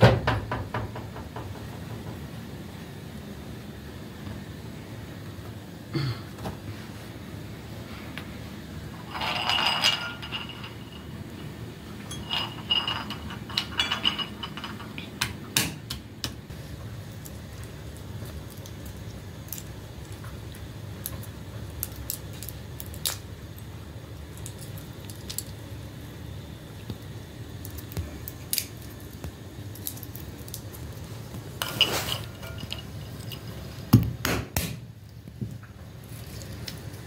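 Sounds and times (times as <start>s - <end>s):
walnut shells cracking: 17.2s - 25.7s, 26.9s - 34.1s.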